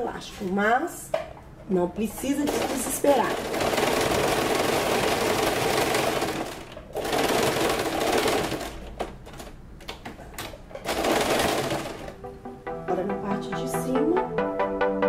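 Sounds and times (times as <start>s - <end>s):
sewing machine stitching: 2.4s - 9.5s, 10.8s - 12.2s.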